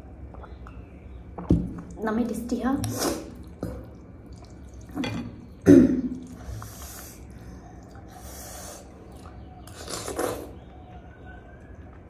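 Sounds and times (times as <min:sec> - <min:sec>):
person slurping noodles: 0:02.9 - 0:03.4, 0:09.7 - 0:10.5.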